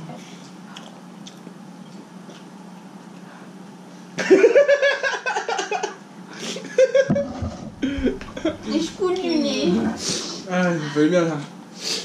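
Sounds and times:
steady low hum: 6.1s - 10.8s.

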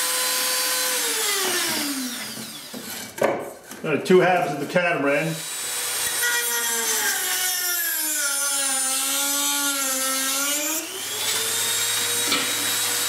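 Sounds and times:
rotary tool cutting plastic pipe: 5.4s - 13.0s.

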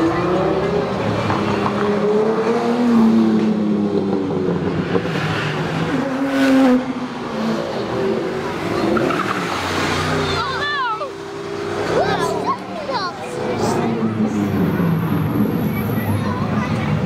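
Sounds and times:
sports car accelerating hard: 0.0s - 12.2s.

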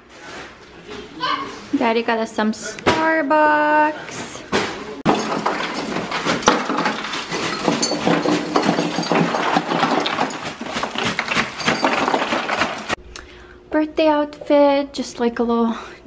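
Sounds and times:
ice cubes clattering: 5.1s - 13.0s.

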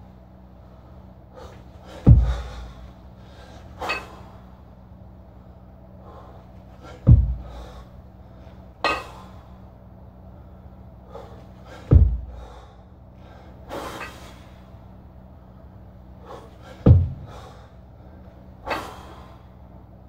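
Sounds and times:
low steady hum: 0.0s - 20.0s
heavy breathing: 0.6s - 4.6s, 5.3s - 19.7s
kettlebells landing with heavy thuds: 1.9s - 3.0s, 3.7s - 4.4s, 6.7s - 7.9s, 8.8s - 9.4s, 11.6s - 12.7s, 16.5s - 17.7s, 18.6s - 19.3s.

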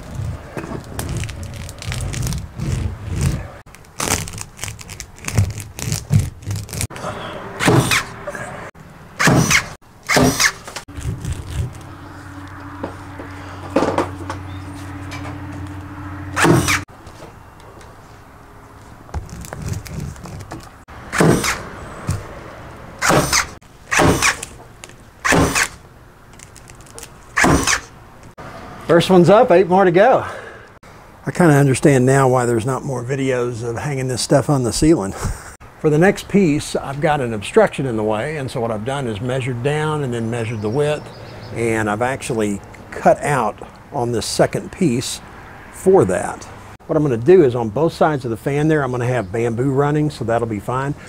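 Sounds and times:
matting crinkling and crackling: 0.0s - 8.0s, 9.8s - 20.9s.

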